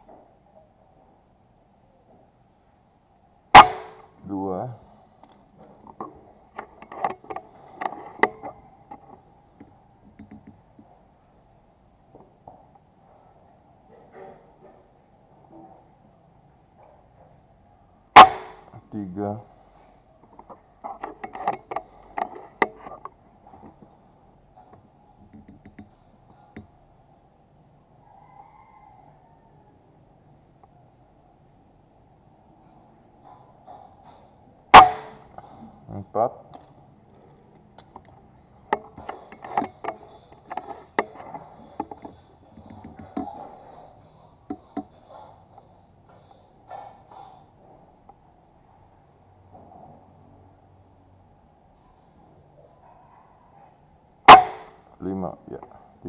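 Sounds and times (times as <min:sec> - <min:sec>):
air rifle clicks and knocks: 0:05.2 - 0:10.9, 0:20.4 - 0:23.9, 0:24.7 - 0:26.7, 0:37.8 - 0:43.4.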